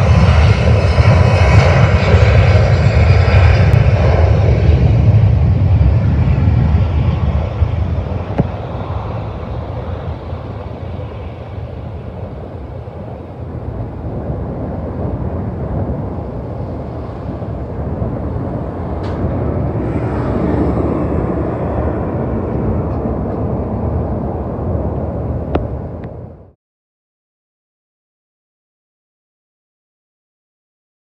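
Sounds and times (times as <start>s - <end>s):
jet airliner taking off: 0.0s - 26.6s.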